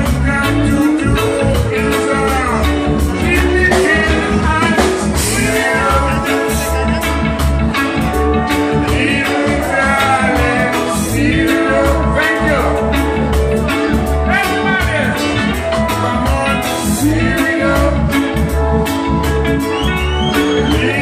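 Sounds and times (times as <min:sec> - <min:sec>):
man singing into a microphone: 0:00.0 - 0:07.4, 0:08.4 - 0:18.7, 0:20.1 - 0:21.0
electric guitars: 0:00.0 - 0:21.0.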